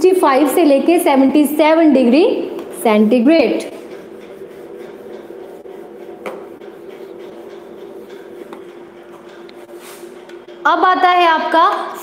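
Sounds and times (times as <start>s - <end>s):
steady hum: 0.0s - 12.0s
duster rubbing on whiteboard: 2.8s - 10.5s.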